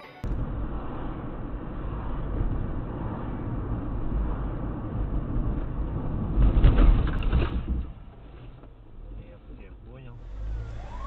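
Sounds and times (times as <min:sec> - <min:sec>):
moving car rumble: 0:00.0 - 0:11.0
rough burst of noise: 0:00.2 - 0:07.2.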